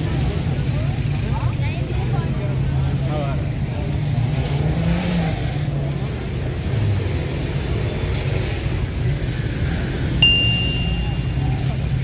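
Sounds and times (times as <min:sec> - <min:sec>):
city street traffic rumble: 0:00.0 - 0:12.0.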